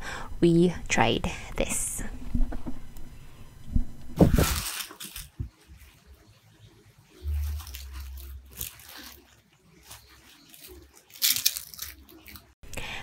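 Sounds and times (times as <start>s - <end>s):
paper packaging crinkling: 4.2s - 6.1s, 7.2s - 12.6s
low rumble of handling noise: 7.2s - 10.3s.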